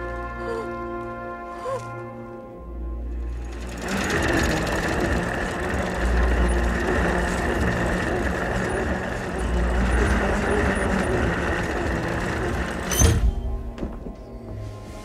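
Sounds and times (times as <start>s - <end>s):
small machine clattering and whirring: 3.0s - 14.3s.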